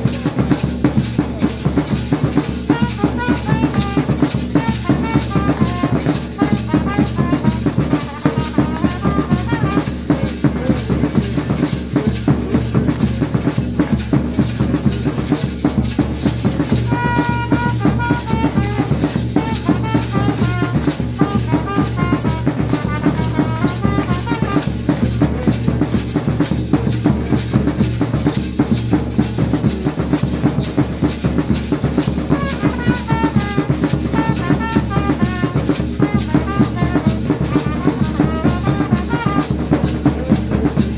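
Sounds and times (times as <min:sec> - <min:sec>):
drums beaten in fast rhythm: 0:00.0 - 0:40.9
trumpet playing melody: 0:01.8 - 0:11.7, 0:16.3 - 0:26.0, 0:31.0 - 0:40.9.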